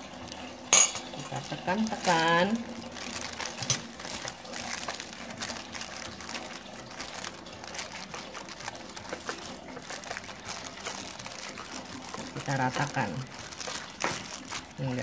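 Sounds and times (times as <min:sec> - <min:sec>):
plastic lining crinkling: 0:00.0 - 0:15.0.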